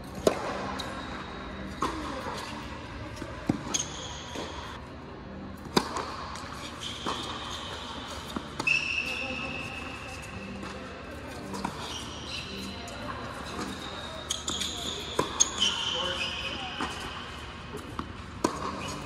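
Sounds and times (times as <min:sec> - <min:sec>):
tennis ball bouncing: 0:00.1 - 0:00.9, 0:03.1 - 0:04.6, 0:05.6 - 0:08.8, 0:13.4 - 0:15.7, 0:16.8 - 0:19.0
racket striking tennis ball: 0:05.6 - 0:08.7, 0:13.5 - 0:15.7, 0:18.0 - 0:19.0.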